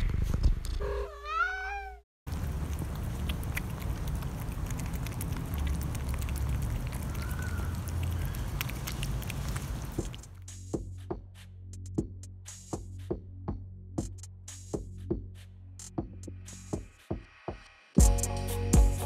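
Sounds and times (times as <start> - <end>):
cat meowing: 0.8 - 2.0
cats chewing and licking: 2.3 - 10.4.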